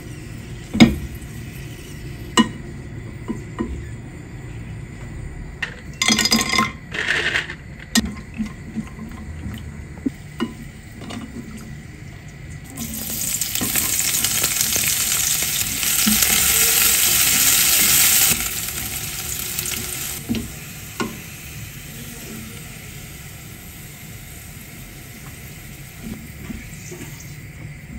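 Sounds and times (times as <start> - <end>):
onions frying sizzle: 0.0 - 2.6, 12.6 - 27.5
nuts sizzling in hot oil: 12.7 - 27.0.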